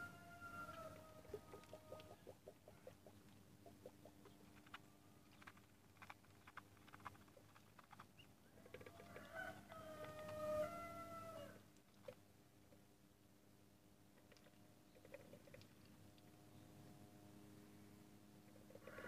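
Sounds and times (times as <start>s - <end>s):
rooster crowing: 0.0s - 2.2s, 8.9s - 11.6s
ducklings pecking with soft clicks: 0.6s - 13.0s, 14.1s - 16.7s.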